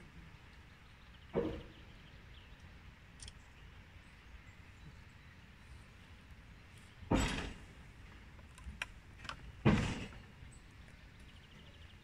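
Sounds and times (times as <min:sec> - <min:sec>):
light clicks: 0:03.1 - 0:03.4
heavy metal clunks: 0:07.1 - 0:07.8, 0:09.6 - 0:10.2.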